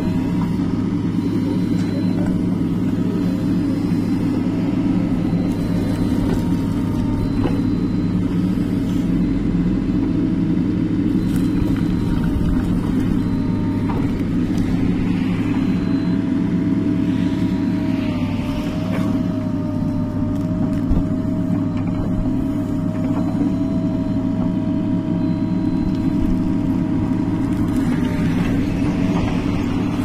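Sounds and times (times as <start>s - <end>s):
diesel engine rumbling: 0.0s - 30.0s.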